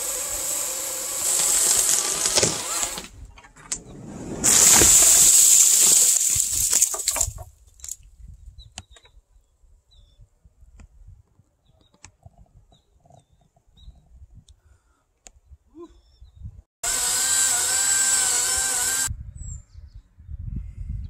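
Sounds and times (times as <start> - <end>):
tree limb crashing through branches: 1.2 - 3.1, 4.3 - 8.0.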